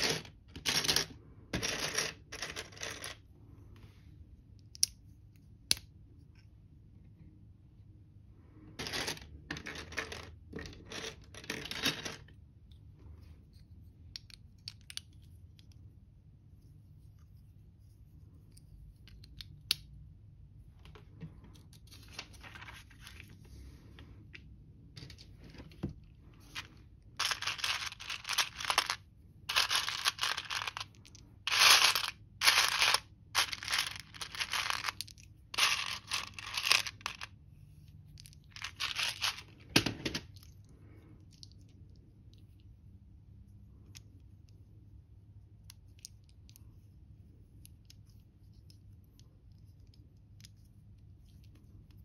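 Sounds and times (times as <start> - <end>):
plastic pieces clattering: 8.8 - 12.3, 26.5 - 37.3, 38.2 - 40.5.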